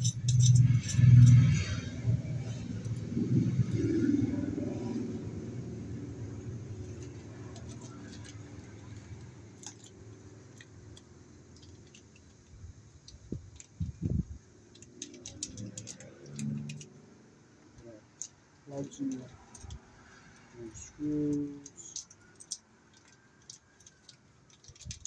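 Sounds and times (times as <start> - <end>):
low engine rumble: 0.0 - 22.1
light clicks of small parts: 6.8 - 17.0, 17.6 - 25.0.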